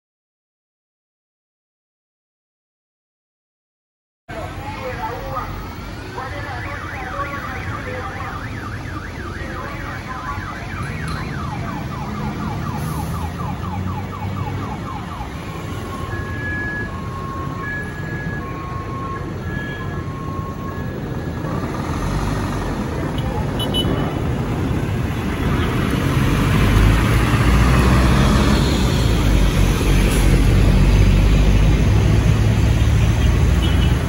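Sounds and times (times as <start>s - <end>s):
car alarm warbling: 6.2s - 21.2s.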